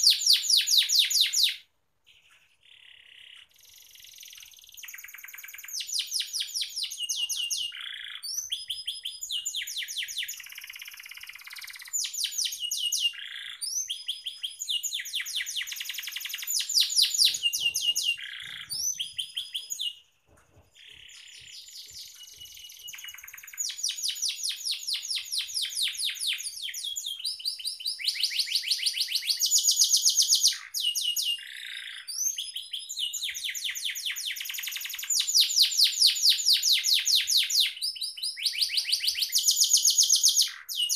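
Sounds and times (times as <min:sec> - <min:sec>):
canary singing trills: 0:00.0 - 0:40.9.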